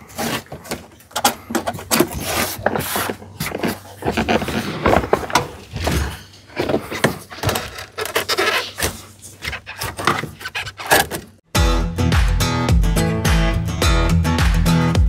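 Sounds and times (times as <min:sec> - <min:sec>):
hand tool scraping dashboard: 0:00.0 - 0:11.4
strummed guitar music: 0:11.5 - 0:15.0.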